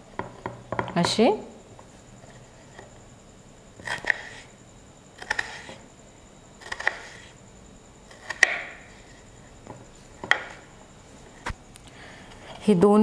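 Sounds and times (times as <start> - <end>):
knife slicing raw potato: 5.2 - 5.8, 6.6 - 7.4, 8.1 - 9.2.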